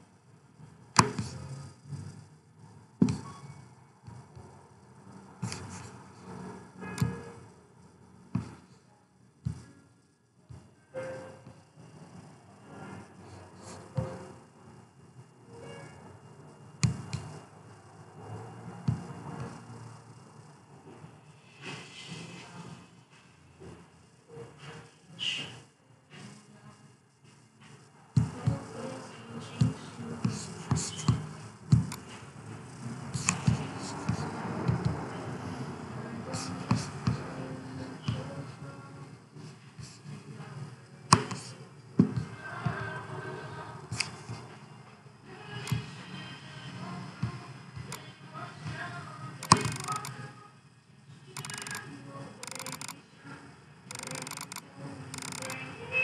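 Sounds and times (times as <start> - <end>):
computer mouse clicking: 49.4 - 50.2, 51.4 - 51.8, 52.4 - 53.0, 53.9 - 54.6, 55.2 - 55.6
mouse wheel ticking: 49.4 - 50.2, 51.4 - 51.8, 52.4 - 53.0, 53.9 - 54.6, 55.2 - 55.6.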